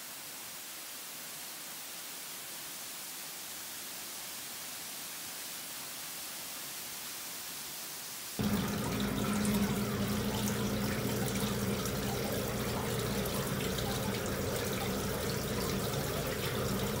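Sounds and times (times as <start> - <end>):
water trickling and splashing: 0.0 - 17.0
small drips and clicks: 8.4 - 17.0
steady low hum: 8.4 - 17.0.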